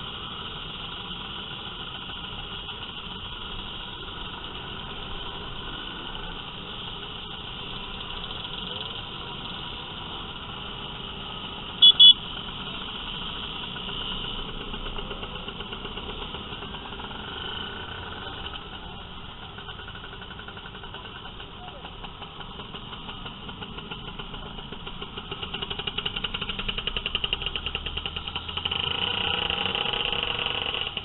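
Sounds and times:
scooter engines running: 0:00.0 - 0:31.0
horn beeps: 0:11.8 - 0:12.2.

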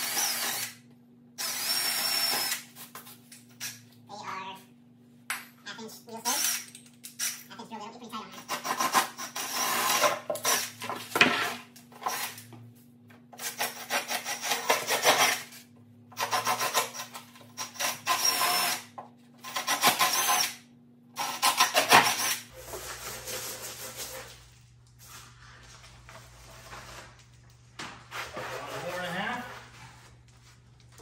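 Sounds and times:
cordless drill boring plywood: 0:00.0 - 0:00.7, 0:01.4 - 0:02.6, 0:17.6 - 0:18.8.

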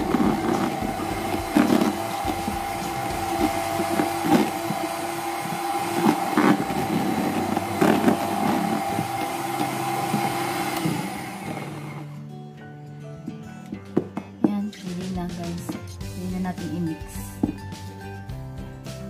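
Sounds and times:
electric hand mixer running: 0:00.0 - 0:12.2.

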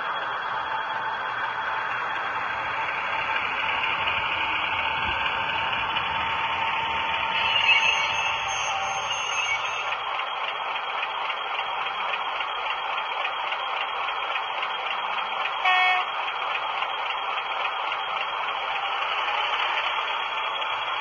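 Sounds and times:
model locomotive horn toot: 0:07.3 - 0:10.0, 0:15.6 - 0:16.1.

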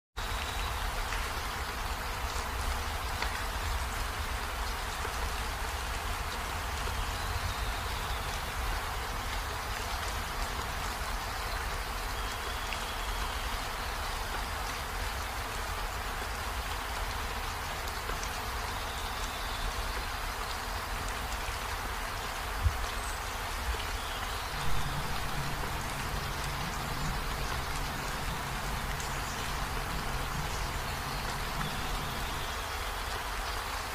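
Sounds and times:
steady rain-like hiss: 0:00.2 - 0:33.9
low steady hum: 0:24.5 - 0:32.6.

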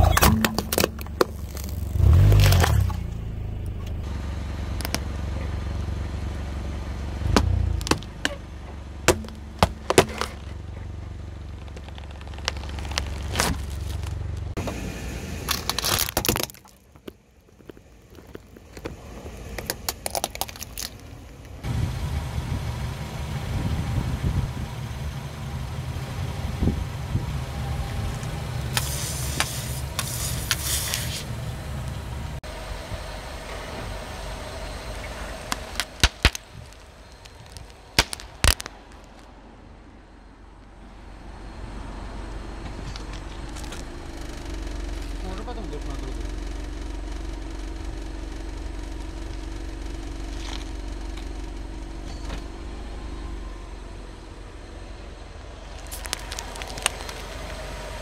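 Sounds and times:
tyre crushing objects: 0:00.0 - 0:03.0, 0:07.2 - 0:08.4, 0:09.1 - 0:10.6, 0:11.5 - 0:14.5, 0:15.5 - 0:21.0, 0:35.5 - 0:39.2, 0:55.8 - 0:57.5
car engine running: 0:00.0 - 0:58.0.

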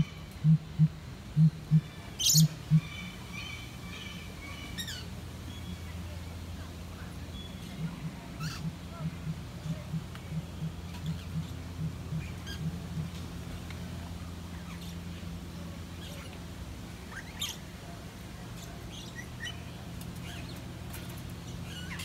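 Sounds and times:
steady low hum: 0:00.0 - 0:22.0
lorikeets chirping and screeching: 0:01.7 - 0:06.0, 0:07.3 - 0:08.8, 0:10.4 - 0:13.2, 0:17.1 - 0:17.7, 0:18.6 - 0:20.6, 0:21.4 - 0:22.0.

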